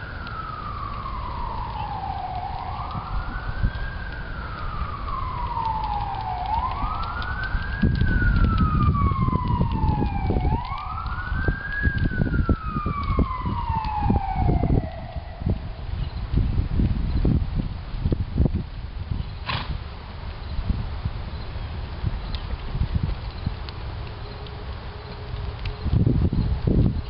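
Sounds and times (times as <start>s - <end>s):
siren wailing: 0.0s - 16.3s.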